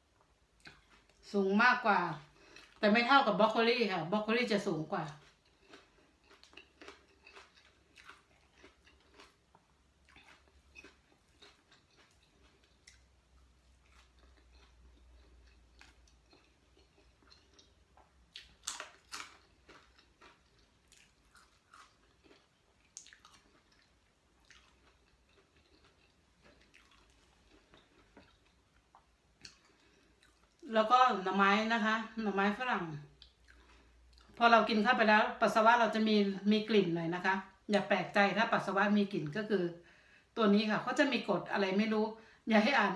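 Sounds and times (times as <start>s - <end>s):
person chewing: 0.2s - 1.2s, 2.3s - 2.8s, 5.0s - 30.7s, 33.1s - 34.4s.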